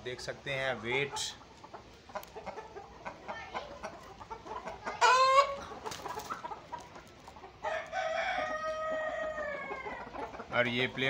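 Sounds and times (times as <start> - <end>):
chickens clucking: 0.0 - 11.0
rooster crowing: 7.7 - 10.0.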